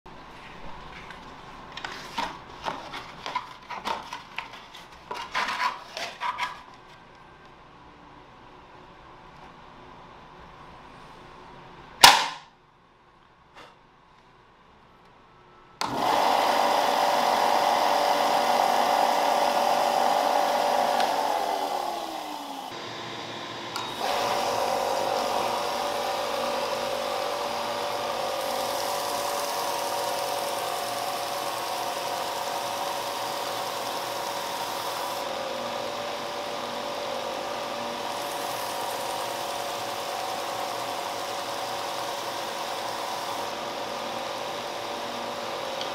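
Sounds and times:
sharp click: 12.0 - 12.5
sander motor whining: 15.8 - 45.9.

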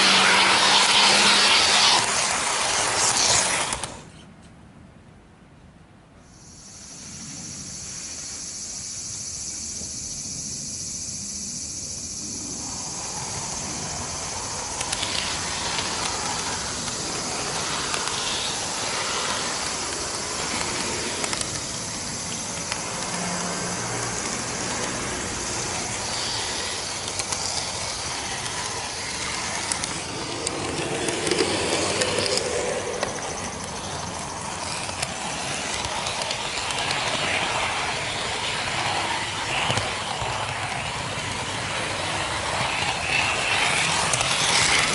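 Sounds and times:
model train whirring: 0.0 - 4.2, 6.3 - 44.9
scattered clicks: 3.0 - 4.0, 12.0 - 44.9.

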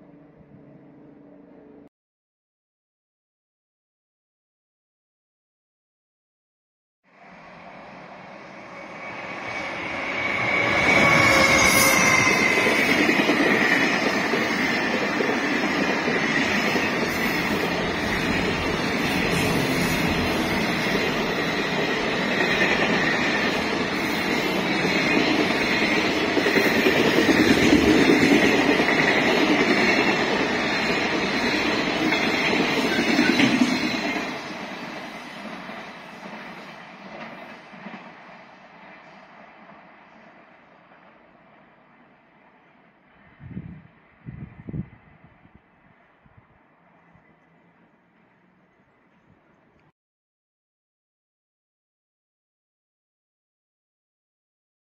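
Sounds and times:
train wheels rumbling on rails: 8.3 - 41.2.

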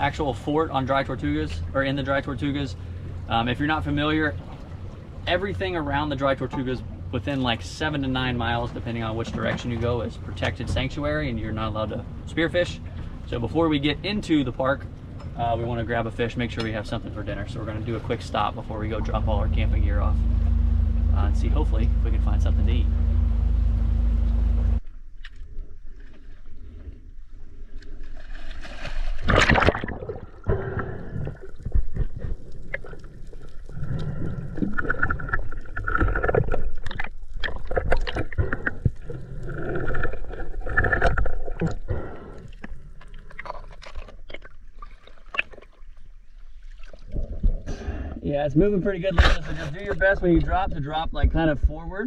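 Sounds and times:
water sloshing and gurgling: 0.0 - 52.0
underwater bubbles: 16.8 - 24.7, 29.2 - 48.2.

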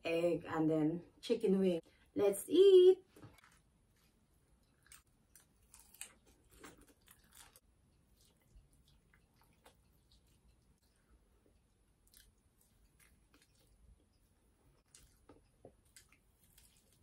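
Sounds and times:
person chewing food: 3.3 - 17.0.

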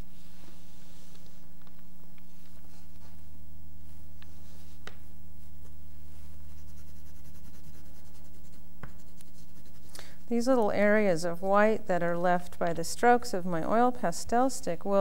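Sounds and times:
low electrical hum: 0.0 - 15.0
pastel scratching on paper: 6.1 - 10.5.

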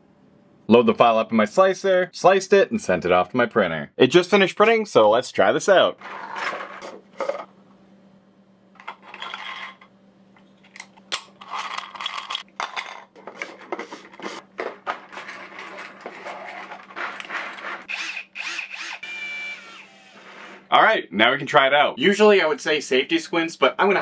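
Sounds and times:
plastic parts rubbing and clicking: 8.8 - 9.9, 10.6 - 17.9.

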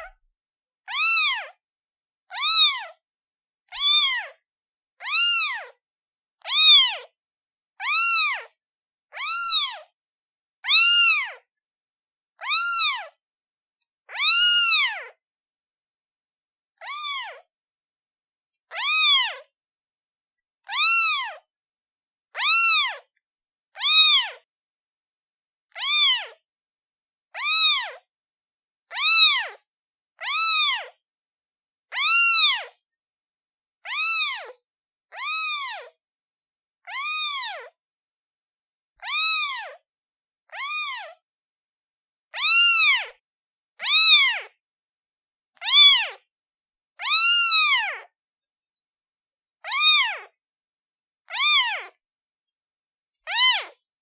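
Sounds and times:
kitten meowing: 0.9 - 1.6, 2.3 - 3.0, 3.7 - 4.4, 5.0 - 5.8, 6.4 - 7.1, 7.8 - 8.5, 9.1 - 9.9, 10.6 - 11.4, 12.4 - 13.2, 14.1 - 15.2, 16.8 - 17.5, 18.7 - 19.5, 20.6 - 21.4, 22.4 - 23.1, 23.7 - 24.4, 25.7 - 26.4, 27.4 - 28.1, 28.9 - 29.6, 30.2 - 31.0, 31.9 - 32.8, 33.8 - 36.0, 36.8 - 37.7, 39.0 - 39.8, 40.5 - 41.2, 42.4 - 43.2, 43.8 - 44.6, 45.6 - 46.2, 47.0 - 48.1, 49.6 - 50.4, 51.2 - 52.0, 53.2 - 53.9.

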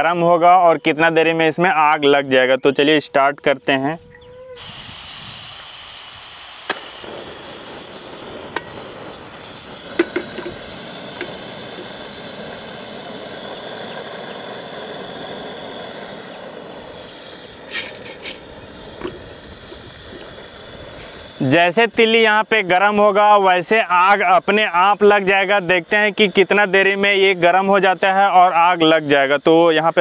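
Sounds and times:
gas burner hissing: 4.6 - 30.0.

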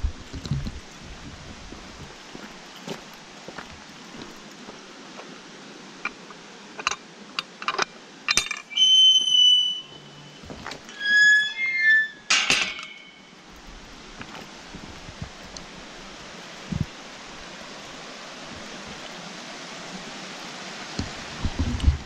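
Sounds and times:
metal gate clanking against post: 7.6 - 9.8, 10.7 - 13.3
gate hinges squealing: 8.3 - 13.4.

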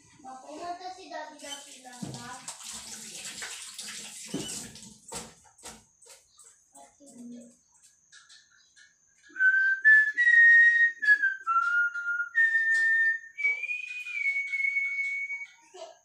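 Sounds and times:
person whistling a tune: 9.3 - 15.8.

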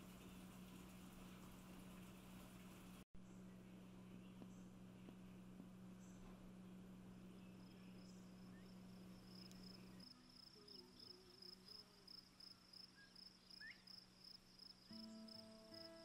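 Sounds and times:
low hum: 0.0 - 12.4
insect chirping trill: 7.6 - 16.0.

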